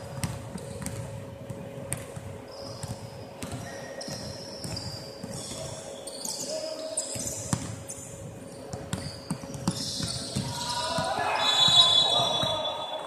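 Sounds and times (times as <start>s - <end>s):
basketballs bouncing on hardwood: 0.0s - 5.7s, 7.2s - 7.8s, 8.7s - 12.6s.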